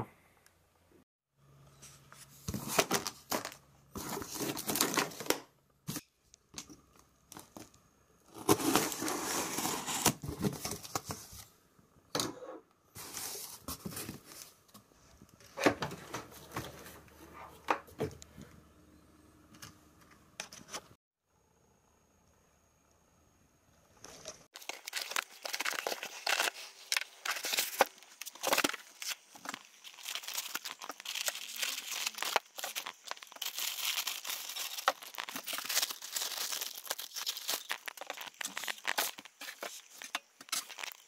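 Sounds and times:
packing tape ripping: 24.6s - 41.0s
plastic wrap crinkling: 24.6s - 41.0s.

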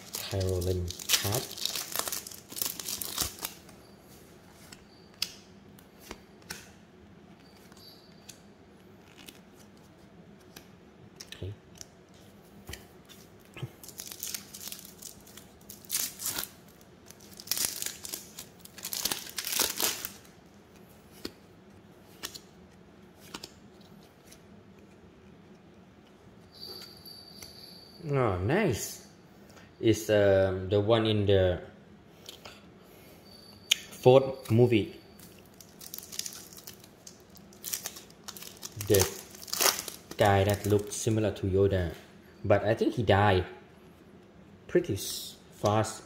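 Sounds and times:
wrapper tearing and crinkling: 0.0s - 3.6s, 13.8s - 20.3s, 35.5s - 40.9s.

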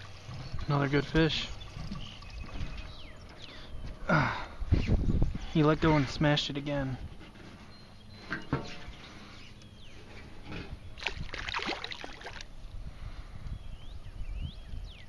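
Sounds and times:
fish splashing at water surface: 11.0s - 12.5s.

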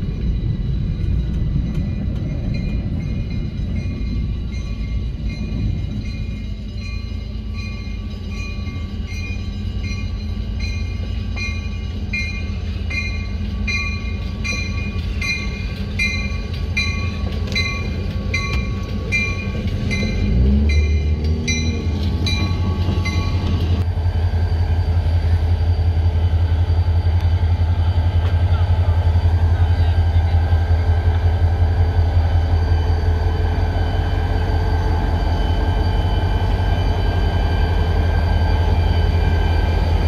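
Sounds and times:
crossing bell dinging: 0.0s - 23.8s
diesel locomotives rumbling: 0.0s - 40.0s.

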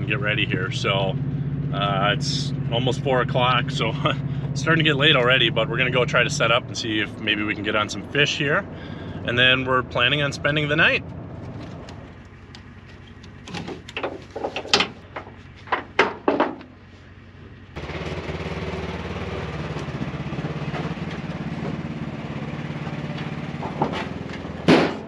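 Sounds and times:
utility vehicle driving drone: 0.0s - 14.0s, 16.8s - 25.0s
low vehicle hum: 0.0s - 25.0s
sharp clicks and knocks: 11.4s - 16.7s.

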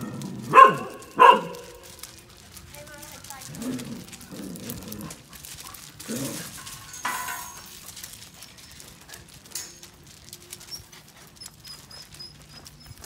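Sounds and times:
puppy yelp: 0.0s - 1.8s, 10.5s - 13.0s
puppy paws on gravel: 0.0s - 13.0s.

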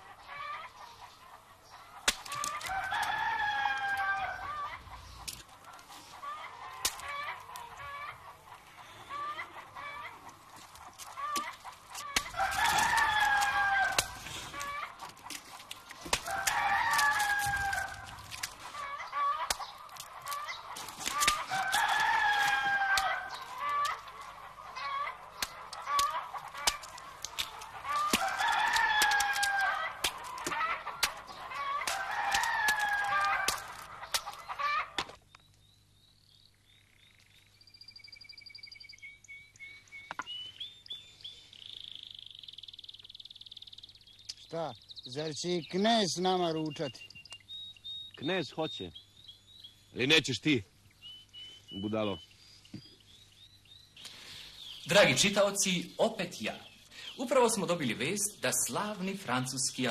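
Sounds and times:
chicken clucking: 3.8s - 13.8s, 18.5s - 35.0s.

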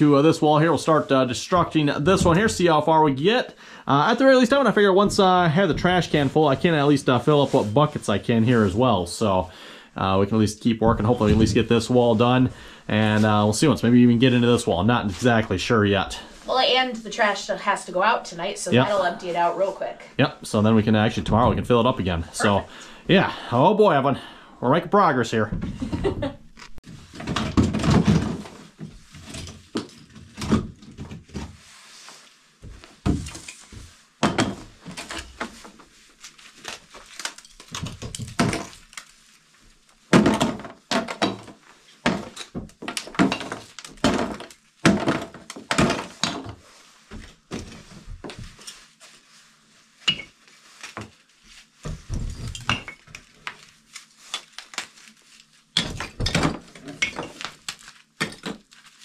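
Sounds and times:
plaster cracking and knocking: 25.5s - 31.5s, 32.6s - 35.9s, 36.5s - 48.7s, 51.8s - 59.0s
plaster chunks clattering into tubs: 27.2s - 31.4s, 40.1s - 46.6s.

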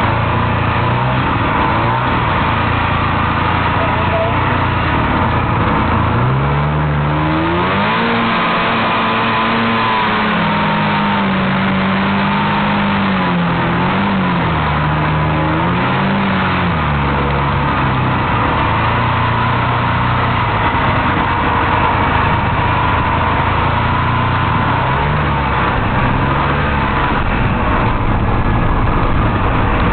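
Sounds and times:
snowmobile two-stroke engine revving: 0.0s - 29.9s
steady rushing noise: 13.3s - 29.9s.

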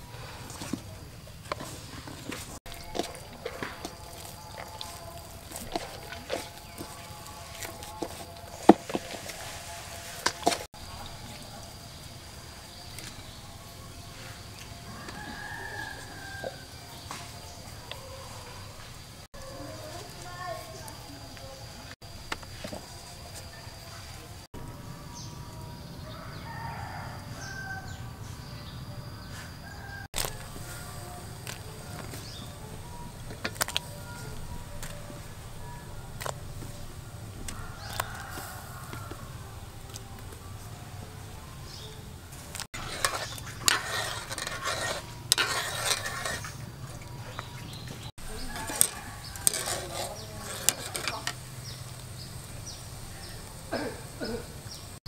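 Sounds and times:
water sloshing: 0.0s - 13.6s, 42.5s - 51.5s
metal utensils clinking against pot: 1.4s - 9.4s, 42.5s - 52.0s
rooster crowing: 14.2s - 19.8s, 25.9s - 28.3s, 29.2s - 33.0s, 37.4s - 40.2s, 48.2s - 51.8s.

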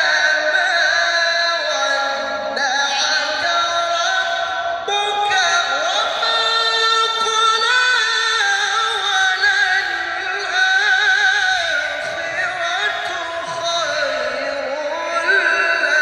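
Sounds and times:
man chanting into microphone: 0.0s - 16.0s.

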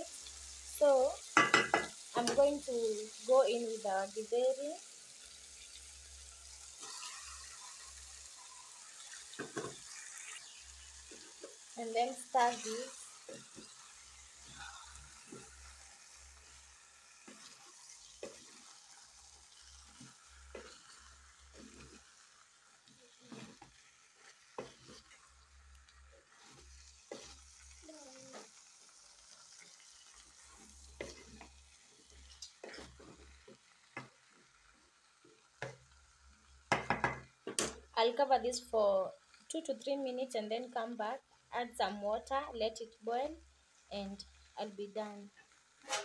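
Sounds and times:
faint sizzle: 0.0s - 46.0s
wooden spoon scraping a pot: 9.0s - 22.2s, 22.8s - 28.6s, 29.5s - 34.1s.

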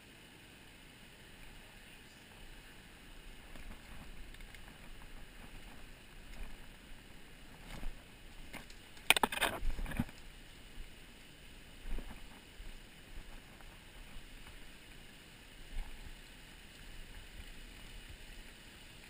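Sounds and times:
twigs rustling and crackling: 3.1s - 10.3s.

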